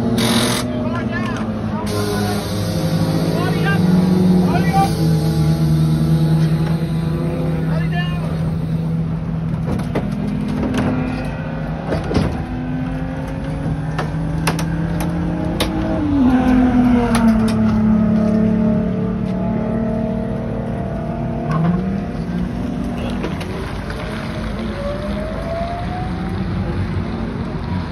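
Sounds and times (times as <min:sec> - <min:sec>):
electric race car whine: 0:00.0 - 0:00.8
race car motor tones: 0:00.0 - 0:25.4
sharp clicks and knocks: 0:13.2 - 0:15.9.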